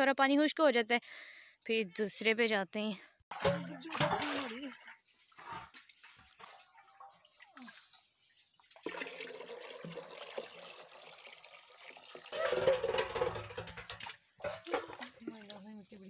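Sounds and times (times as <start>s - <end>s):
faint water trickling: 2.9s - 16.0s
water splashing into a metal pot: 3.3s - 7.9s, 8.6s - 15.6s.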